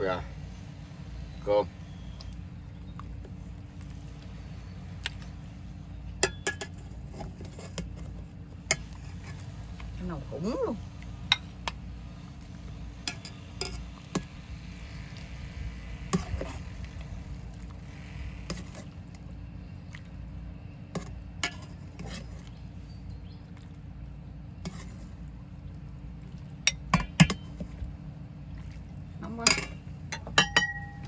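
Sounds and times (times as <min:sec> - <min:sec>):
steady low hum: 0:00.0 - 0:31.0
utensils clinking against bowls: 0:06.2 - 0:06.8, 0:13.0 - 0:13.9, 0:26.7 - 0:27.6, 0:29.3 - 0:31.0.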